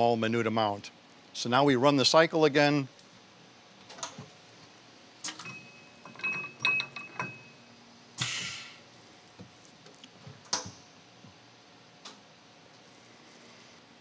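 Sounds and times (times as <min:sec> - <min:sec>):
short hiss: 0:08.2 - 0:08.8.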